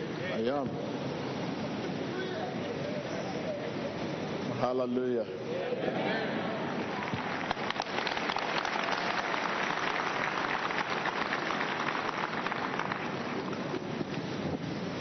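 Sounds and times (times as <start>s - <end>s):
crowd applauding: 6.6s - 14.0s.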